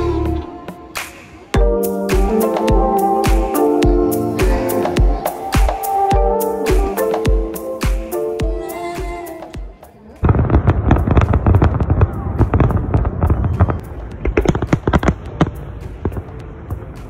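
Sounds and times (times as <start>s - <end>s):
fireworks bangs and crackles: 10.0s - 17.0s.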